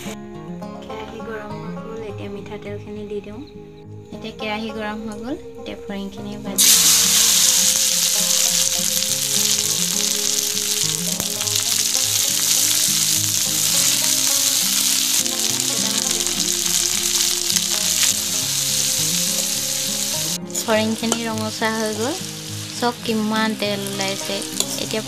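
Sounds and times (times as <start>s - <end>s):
background music: 0.0s - 25.0s
food sizzling in hot oil: 6.6s - 25.0s.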